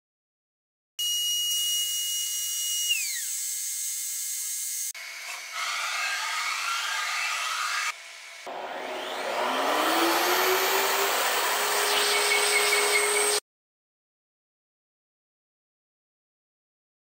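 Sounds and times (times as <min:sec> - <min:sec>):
machine hissing whir cutting metal: 0:05.0 - 0:13.4
spindle high-pitched whine: 0:05.0 - 0:13.4.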